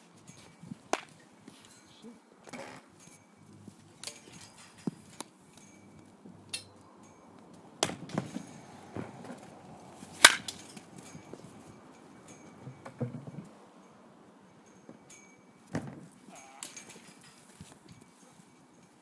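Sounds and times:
baseball bat striking balls: 0.8 - 1.2, 7.8 - 11.5.

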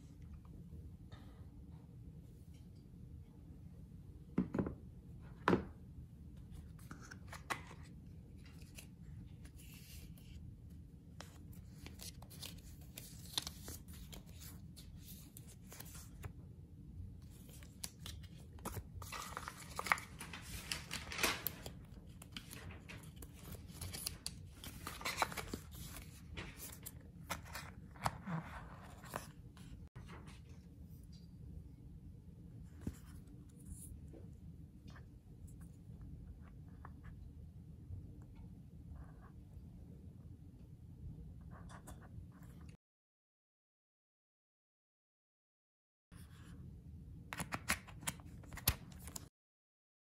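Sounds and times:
paper and plastic rustling: 17.5 - 29.3.

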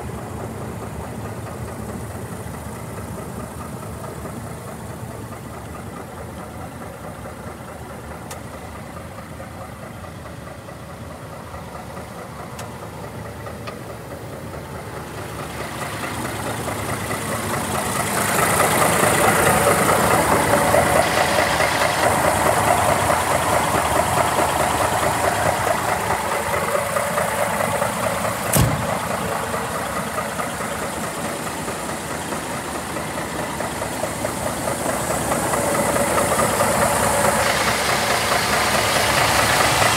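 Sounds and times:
truck diesel engine idling: 0.0 - 39.9
sharp knock: 28.5 - 29.0.

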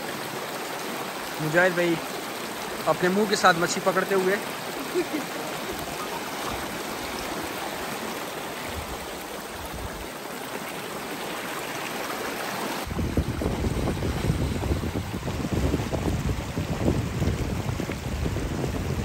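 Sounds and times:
stream water rushing: 0.0 - 19.0
low gusty rumble: 12.9 - 19.0.

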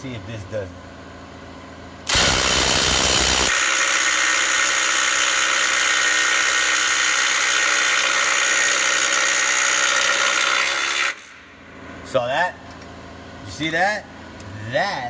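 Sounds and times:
impact driver hammering: 2.1 - 11.4.

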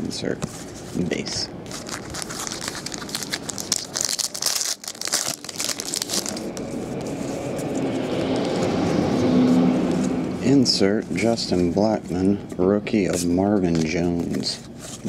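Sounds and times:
foil wrapper crinkling: 1.7 - 8.5.

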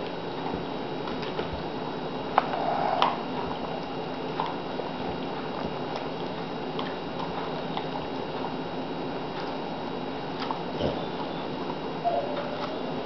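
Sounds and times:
dog gnawing and licking: 0.0 - 13.0.

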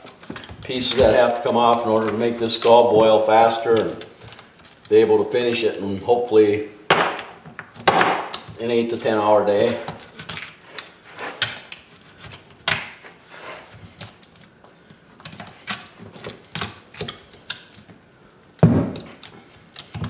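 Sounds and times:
heavy thump: 18.6 - 19.0.

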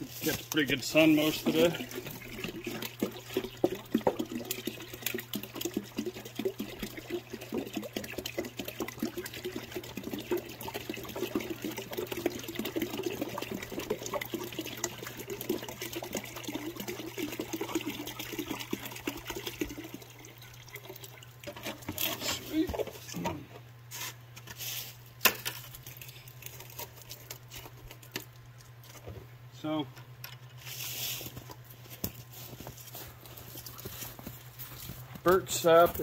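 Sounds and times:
sap dripping into plastic jug: 0.5 - 23.2.

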